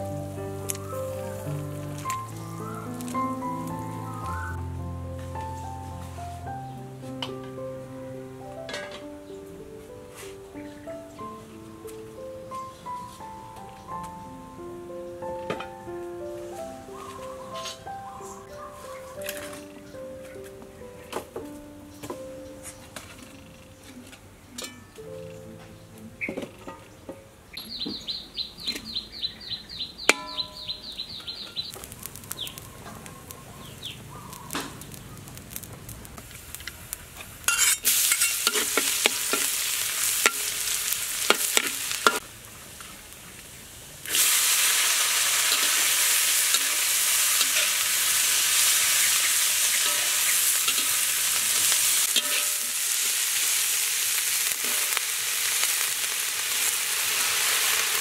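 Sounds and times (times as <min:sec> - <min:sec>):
high chirps: 0:00.0 - 0:07.7, 0:27.5 - 0:35.6
food frying in hot oil: 0:30.6 - 0:58.0
metal spatula scraping a wok: 0:37.5 - 0:42.2, 0:45.5 - 0:49.1, 0:49.8 - 0:52.9.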